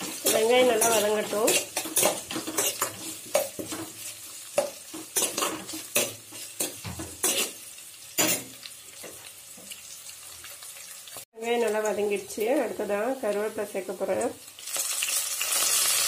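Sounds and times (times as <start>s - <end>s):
metal spoon scraping pan: 0.0s - 7.6s
onions sizzling in hot oil: 0.0s - 16.0s.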